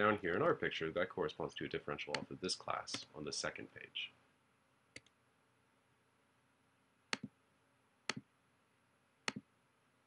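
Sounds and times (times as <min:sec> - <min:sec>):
computer mouse clicks: 0:07.1 - 0:07.3, 0:09.2 - 0:09.5.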